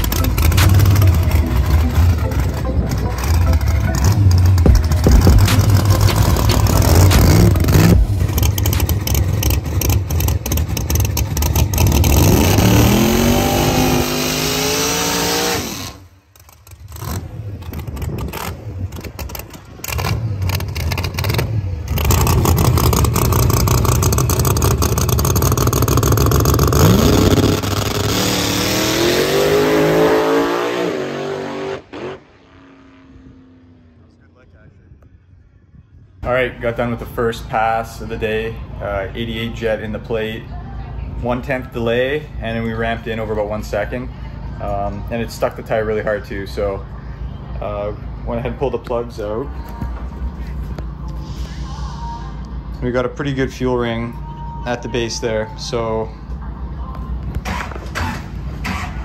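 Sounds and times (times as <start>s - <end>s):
drag car engine at full throttle: 0.0s - 34.2s, 57.2s - 59.0s.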